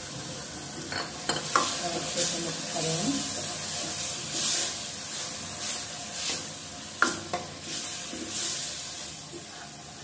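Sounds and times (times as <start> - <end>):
masala sizzling in a pan: 0.0 - 10.0.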